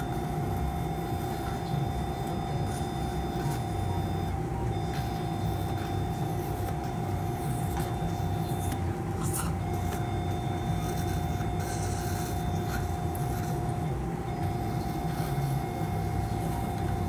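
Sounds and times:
continuous low hum: 0:00.0 - 0:17.0.

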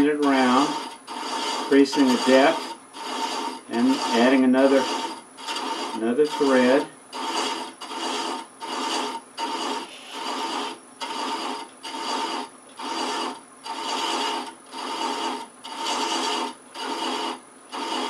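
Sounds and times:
thread chaser scraping wood: 0:00.0 - 0:18.0.

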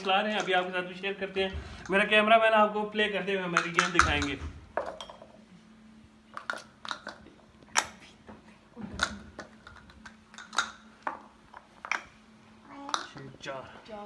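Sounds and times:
faint steady hum: 0:00.0 - 0:14.0
plastic tokens tapping on board: 0:03.6 - 0:05.1.

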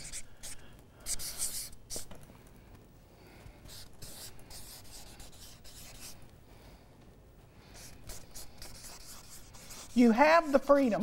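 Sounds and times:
marker pen scratching on paper: 0:00.0 - 0:02.2, 0:03.5 - 0:06.3, 0:07.7 - 0:10.2.

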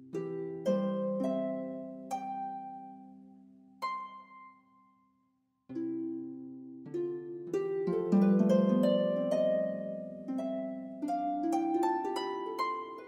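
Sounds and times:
gentle plucked background music: 0:05.8 - 0:13.0.

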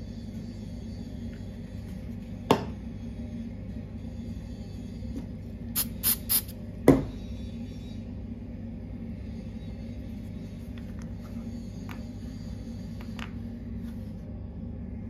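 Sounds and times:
aerosol spray can hiss: 0:05.8 - 0:06.5.

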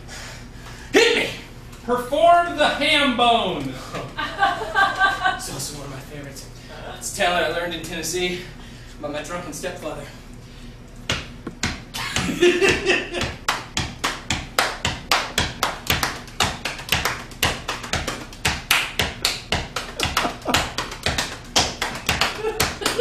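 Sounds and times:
hands slapping thighs and clapping: 0:11.0 - 0:23.0.

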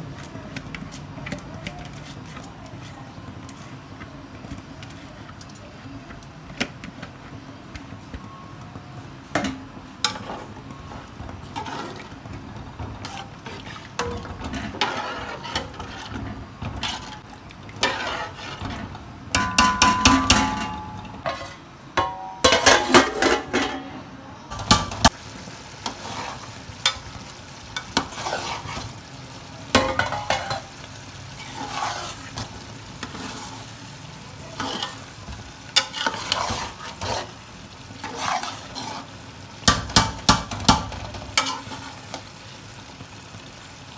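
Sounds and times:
soft cooking sizzle: 0:00.0 - 0:43.9
metal spoon scraping in pot: 0:11.5 - 0:12.1, 0:13.0 - 0:19.0, 0:31.4 - 0:32.4, 0:34.6 - 0:35.1, 0:35.8 - 0:37.4, 0:38.0 - 0:39.1.

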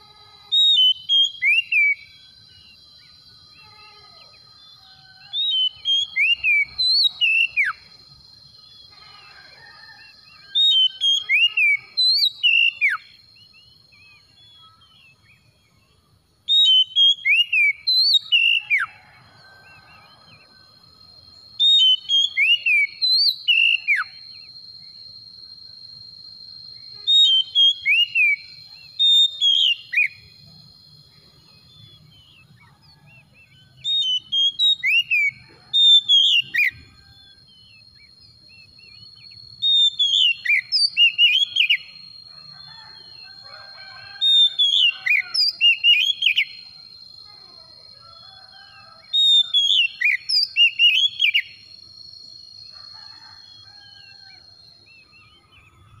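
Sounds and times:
bird singing whistled notes: 0:00.5 - 0:08.0, 0:09.7 - 0:19.0, 0:21.2 - 0:25.2, 0:26.0 - 0:30.4, 0:31.2 - 0:42.1, 0:42.7 - 0:46.7, 0:49.1 - 0:51.7.

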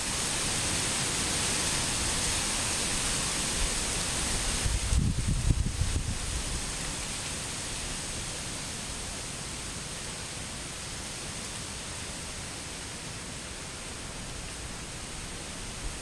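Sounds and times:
waterfall rushing: 0:00.0 - 0:04.9.

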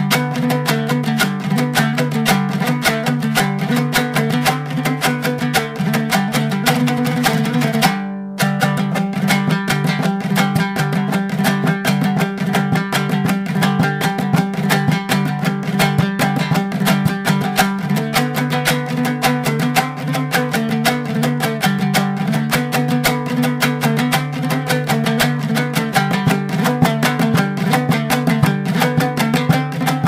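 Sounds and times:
rapidly picked string instrument: 0:00.0 - 0:30.0.

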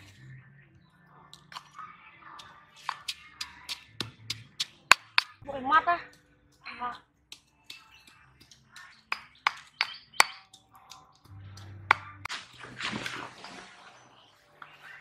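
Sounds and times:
stone pestle knocking in mortar: 0:07.3 - 0:10.6.

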